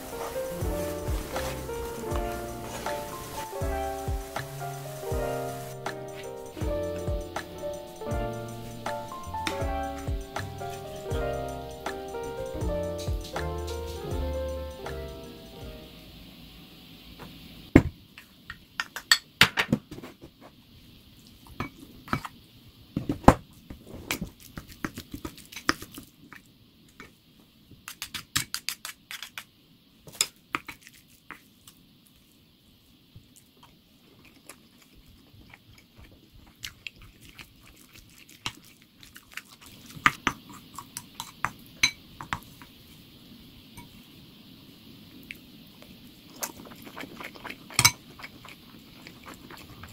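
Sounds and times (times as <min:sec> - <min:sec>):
chewing: 0:33.2 - 0:41.4, 0:46.3 - 0:49.9.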